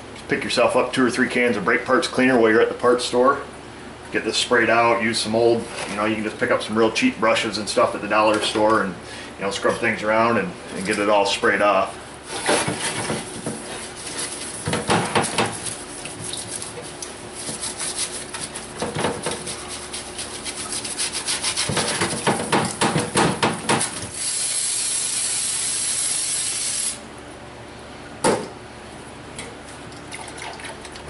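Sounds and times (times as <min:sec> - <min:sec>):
stiff brush scrubbing metal: 0:12.3 - 0:22.8
steady hiss: 0:24.2 - 0:27.0.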